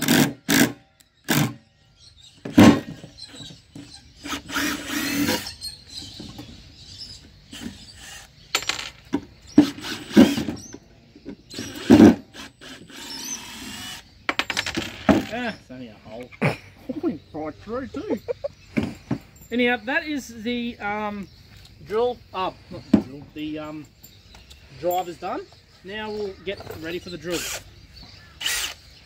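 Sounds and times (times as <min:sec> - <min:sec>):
impact driver backing out screws: 0:02.4 - 0:05.6, 0:07.5 - 0:10.8, 0:11.5 - 0:15.5.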